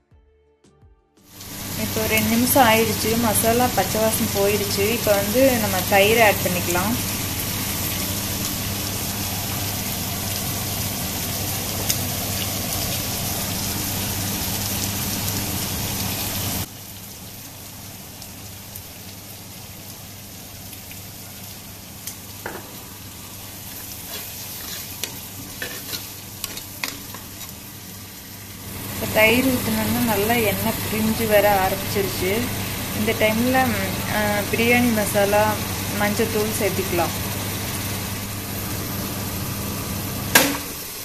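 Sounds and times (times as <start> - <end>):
food sizzling in oil: 1.3 - 41.0
metal ladle scraping a pot: 23.7 - 27.6.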